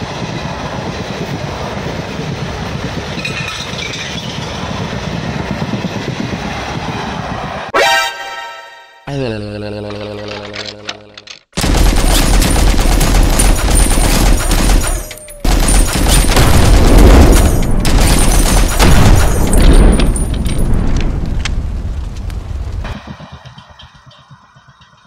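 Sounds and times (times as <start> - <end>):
machine-gun fire: 11.6 - 20.3.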